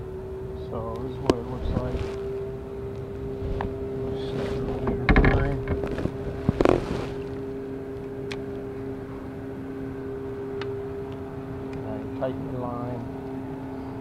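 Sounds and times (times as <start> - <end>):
distant engine hum: 0.0 - 14.0
fishing gear knock and rustle: 4.6 - 7.4.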